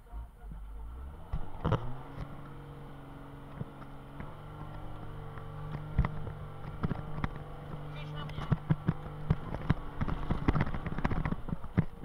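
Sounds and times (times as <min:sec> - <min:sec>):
cab knocking and rattling: 0:03.5 - 0:12.0.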